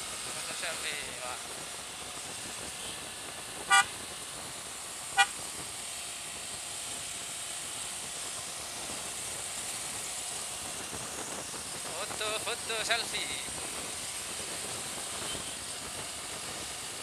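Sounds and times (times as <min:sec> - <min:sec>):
wind and road noise: 0:00.0 - 0:17.0
motorcycle horn toots: 0:03.7 - 0:04.0, 0:05.2 - 0:05.4, 0:15.1 - 0:15.6.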